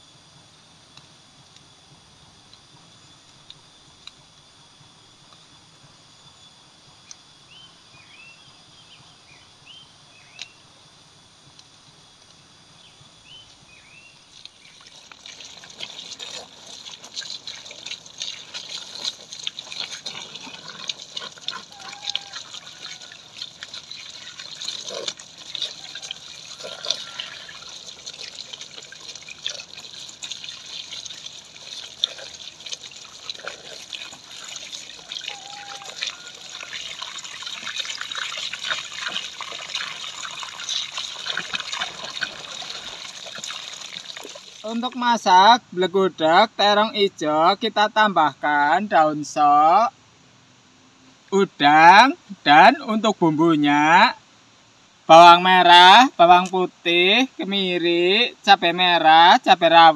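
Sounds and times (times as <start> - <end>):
water splashing in plastic basin: 14.3 - 44.8
faint high chirps: 35.0 - 36.8.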